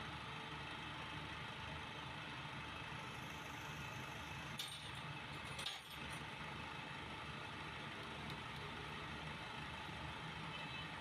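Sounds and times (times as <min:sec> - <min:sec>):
metal tool clinking on engine parts: 0:04.6 - 0:06.2.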